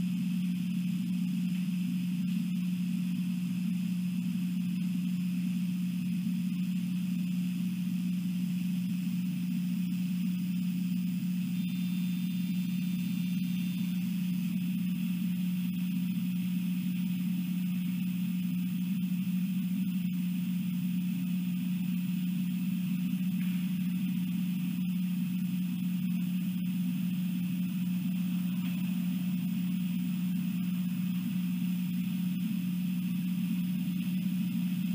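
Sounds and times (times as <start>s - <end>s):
steady low hum: 0.0s - 34.9s.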